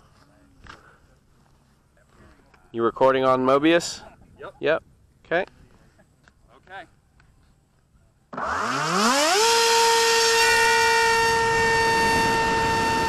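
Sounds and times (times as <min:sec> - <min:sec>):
electric motor whine: 0:08.3 - 0:13.0
propeller and wind rush: 0:09.4 - 0:13.0.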